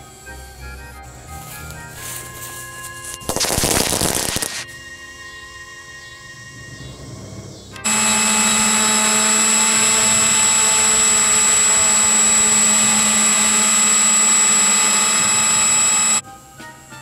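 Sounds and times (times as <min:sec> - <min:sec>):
model plane motor and propeller: 0:07.8 - 0:16.2.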